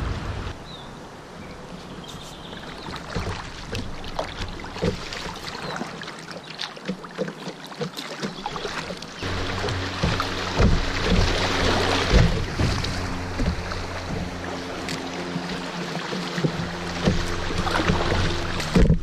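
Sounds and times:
river water rushing and splashing: 0.0 - 19.0
low rumble: 9.2 - 15.8.

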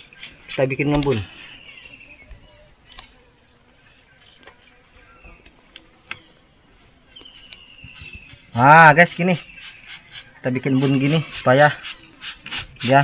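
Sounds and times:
insects chirring: 0.0 - 13.0
faint clicks: 2.9 - 3.2.

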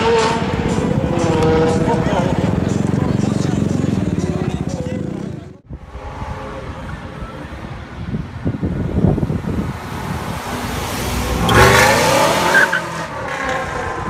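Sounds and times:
car engine revving: 0.0 - 4.9, 9.4 - 14.0.

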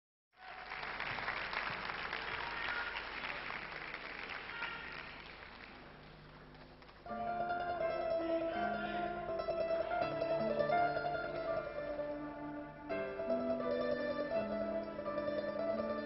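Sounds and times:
audience applauding: 0.4 - 7.1
orchestra playing: 7.1 - 16.0.

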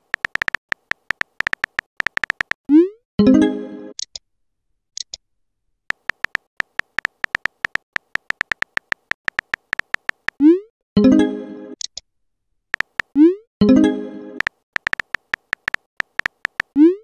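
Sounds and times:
synthetic keyboard ticks: 0.0 - 2.8, 5.9 - 10.5, 12.7 - 13.3, 14.4 - 17.0.

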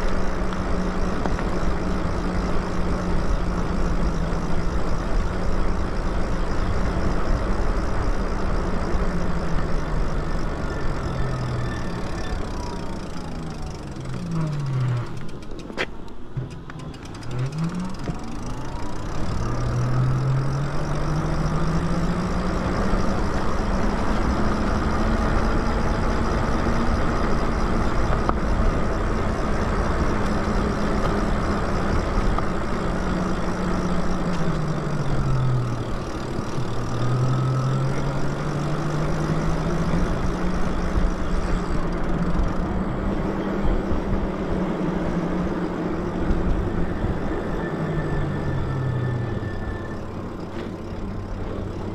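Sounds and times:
electric bike motor hum: 0.0 - 51.9.

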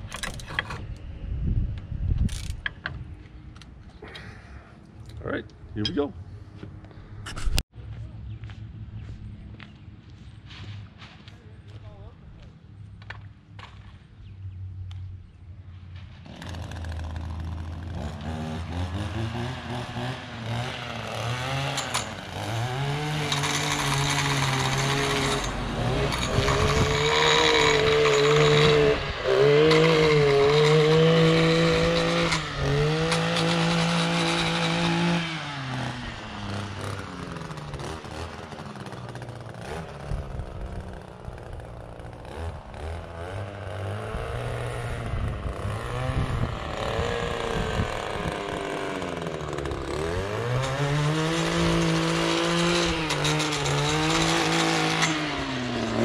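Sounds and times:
edger engine revving: 16.2 - 56.0.

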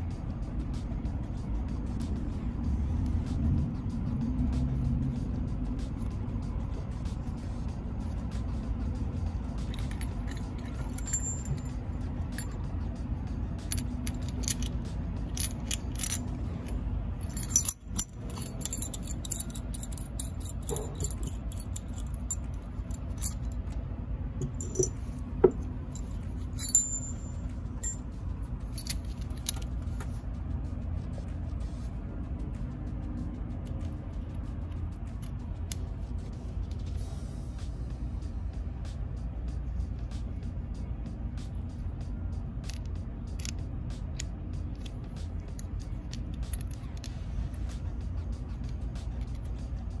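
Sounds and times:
background music: 0.0 - 50.0
metal tools clinking: 9.6 - 12.6, 13.6 - 23.8, 24.4 - 28.1, 28.7 - 29.7.

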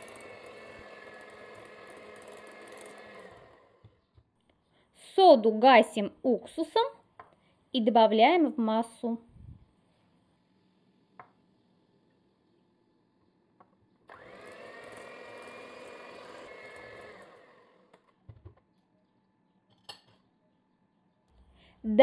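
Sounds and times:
electric hand mixer whine: 0.0 - 4.0, 14.0 - 18.1.

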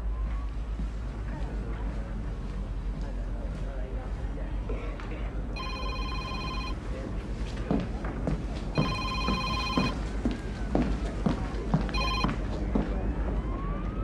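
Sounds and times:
smartphone ringtone beeping: 5.6 - 6.8, 8.8 - 10.0, 12.0 - 12.3.

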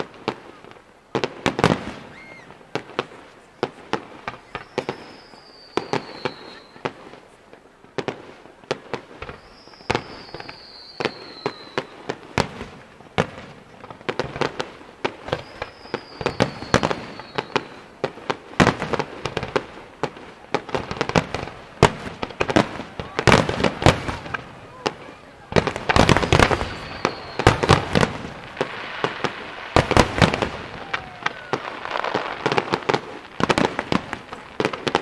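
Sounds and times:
fireworks bangs: 0.0 - 35.0
descending firework whistle: 1.6 - 7.3, 9.2 - 12.4, 15.0 - 18.1, 22.9 - 35.0.

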